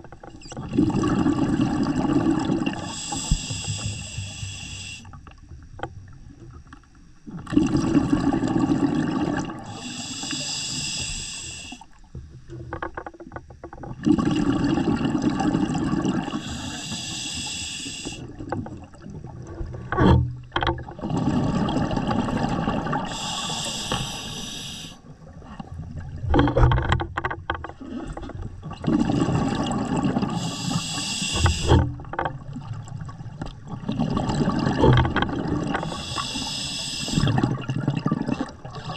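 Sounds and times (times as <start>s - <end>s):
exhaled bubbles gurgling: 0.0s - 12.7s, 13.8s - 26.8s, 27.7s - 38.9s
regulator hiss on inhale: 2.7s - 5.3s, 9.6s - 12.1s, 16.1s - 18.4s, 23.0s - 25.0s, 30.2s - 32.0s, 35.8s - 37.4s.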